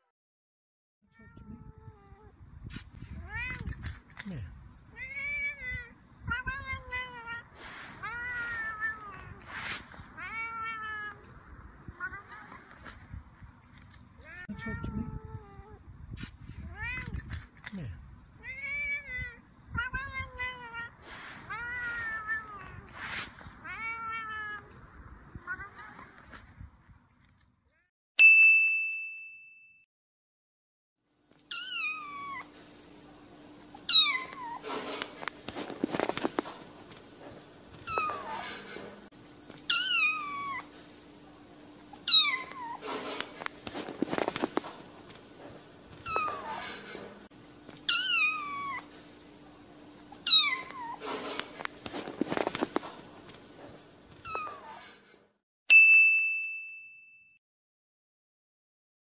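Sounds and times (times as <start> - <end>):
cat mewing: 1.2 - 3.8, 4.9 - 12.8, 18.4 - 23.0, 23.6 - 26.2, 31.5 - 32.5, 33.8 - 34.8, 37.8 - 39.0, 39.7 - 40.8, 42.0 - 43.0, 46.0 - 47.2, 47.9 - 48.9, 50.2 - 51.2, 54.2 - 55.0
rustling: 7.5 - 10.2, 34.2 - 39.7, 42.0 - 47.8, 50.6 - 55.0
chime ding: 28.2 - 29.8, 55.7 - 57.4.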